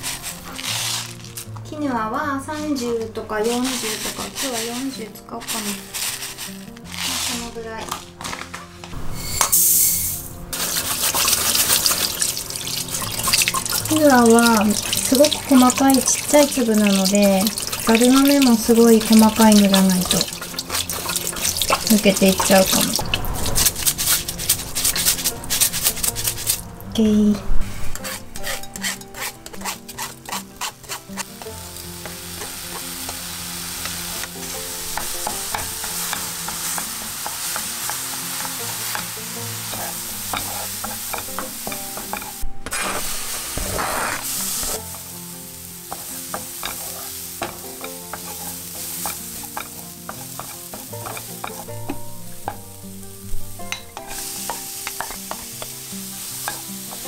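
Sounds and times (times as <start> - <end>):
wooden spatula scraping a pan: 0.0 - 1.7, 2.3 - 9.4, 10.5 - 26.7, 27.6 - 45.1, 45.7 - 52.6, 54.0 - 57.0
grain sizzling in a frying pan: 0.0 - 57.0.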